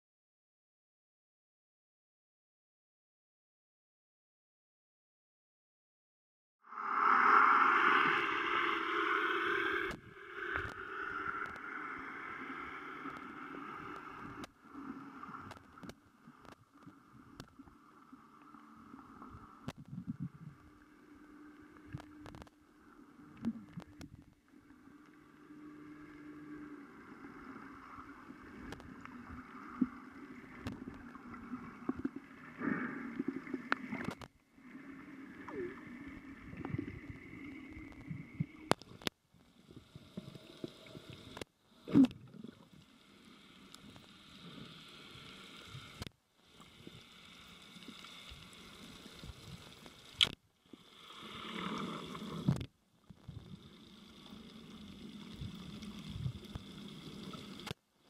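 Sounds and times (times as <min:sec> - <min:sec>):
underwater water noise: 0:06.6 - 0:58.0
sharp underwater clicks: 0:49.6 - 0:50.4.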